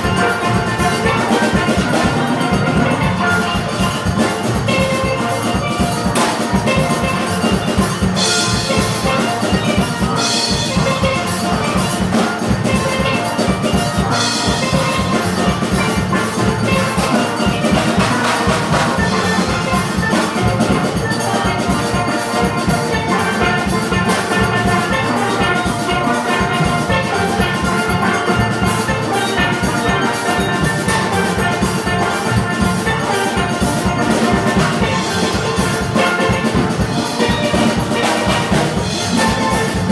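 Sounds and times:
steady drum beat: 0.0 - 39.9
steelpans playing melody: 0.0 - 39.9.

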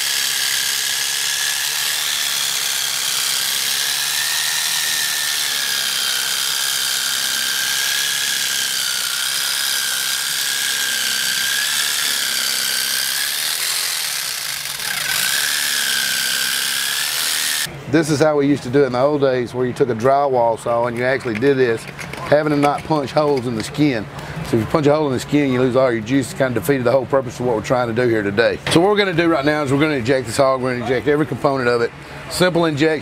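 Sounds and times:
electric saw cutting bone: 0.0 - 17.7.

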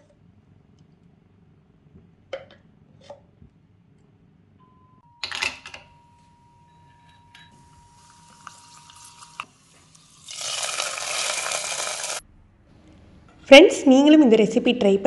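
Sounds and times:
hot ghee sizzling in pot: 7.9 - 12.2
cashews sizzling in hot ghee: 8.0 - 12.2.

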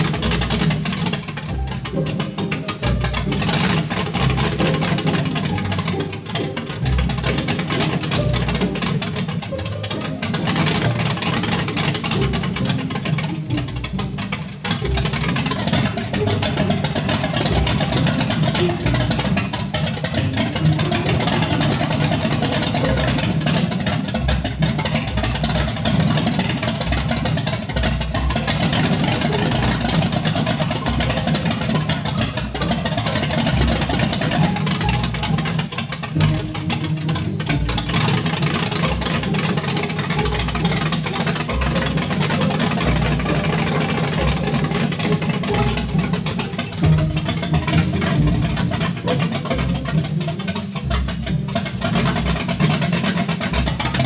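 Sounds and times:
engine rumbling on open headers: 0.0 - 54.0.

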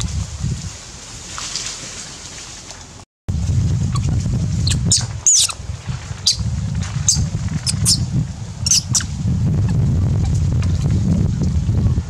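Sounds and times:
wind rumble on microphone: 0.0 - 2.3, 3.3 - 12.0
monkeys squeaking: 3.9 - 5.6, 6.2 - 6.4, 7.0 - 8.0, 8.6 - 10.4.

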